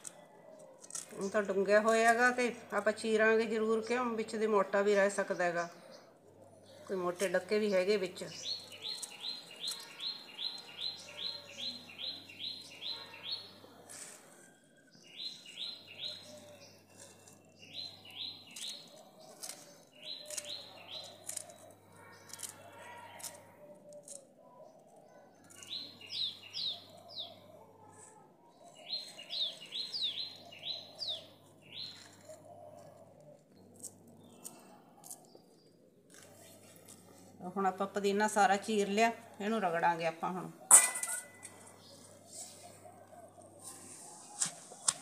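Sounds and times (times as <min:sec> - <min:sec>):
bird chirping: 0:05.2 - 0:14.2, 0:14.8 - 0:37.2.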